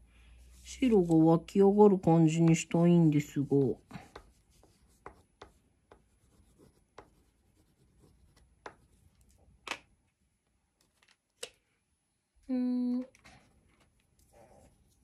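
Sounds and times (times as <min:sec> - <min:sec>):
crayon scratching on paper: 0:03.9 - 0:09.0.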